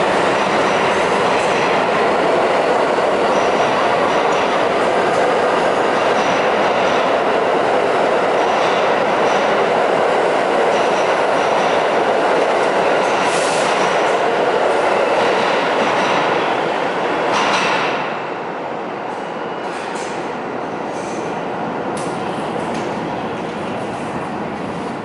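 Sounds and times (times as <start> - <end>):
train wheels rumbling on rails: 0.0 - 18.4.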